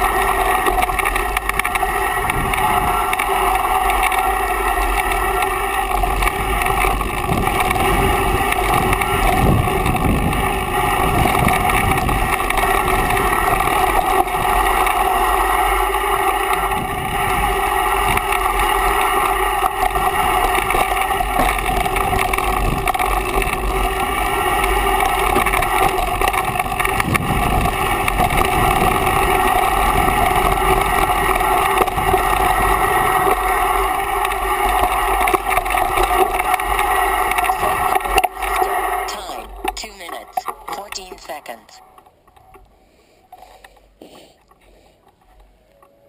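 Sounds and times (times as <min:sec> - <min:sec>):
bike tyre and frame rattle: 0:00.0 - 0:38.3
constant hum: 0:00.0 - 0:46.0
wind rushing on microphone: 0:06.3 - 0:14.6, 0:26.4 - 0:33.3.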